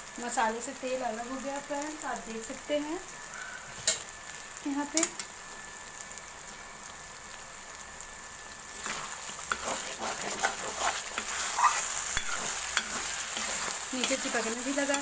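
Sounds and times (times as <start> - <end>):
paste sizzling in oil: 0.0 - 15.0
steel spoon scraping pan: 8.8 - 15.0.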